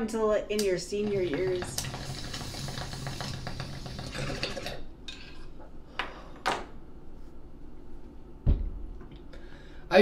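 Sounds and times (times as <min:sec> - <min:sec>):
water bubbling in a bong: 0:01.5 - 0:04.9.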